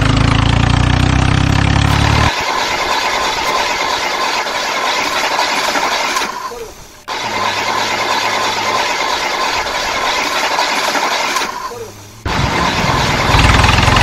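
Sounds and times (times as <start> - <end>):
toy truck wheels rolling: 2.3 - 14.0.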